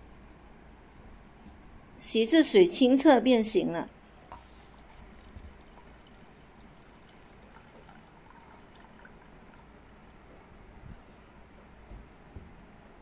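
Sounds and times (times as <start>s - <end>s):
water trickling into bowl: 4.0s - 11.1s.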